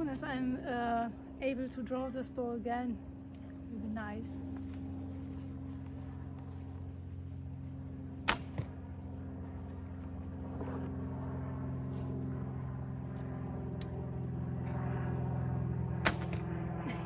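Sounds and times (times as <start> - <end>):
low mechanical hum: 0.0 - 17.0
bowstring snap: 8.3 - 8.7, 16.0 - 16.4.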